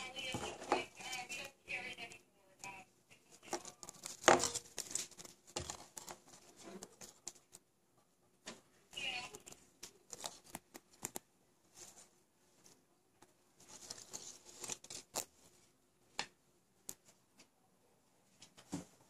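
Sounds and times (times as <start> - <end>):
soft rustling: 2.6 - 7.7, 8.3 - 15.8.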